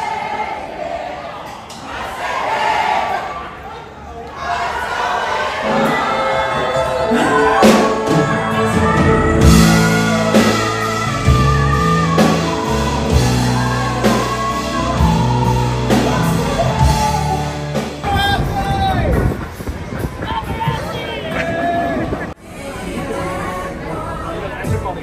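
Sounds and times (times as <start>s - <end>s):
band playing: 5.3s - 20.1s
person singing: 5.6s - 18.0s
regular drum beat: 7.6s - 18.5s.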